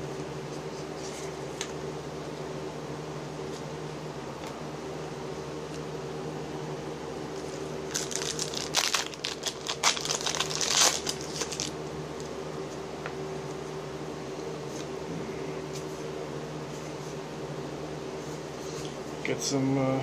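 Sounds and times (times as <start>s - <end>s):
low steady hum: 0.0s - 20.0s
plastic wrapper crinkling: 7.9s - 11.8s.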